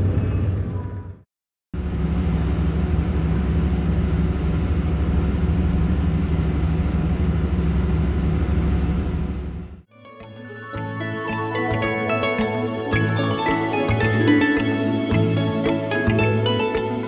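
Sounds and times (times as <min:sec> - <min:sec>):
boat engine and propeller drone: 0:01.8 - 0:09.8.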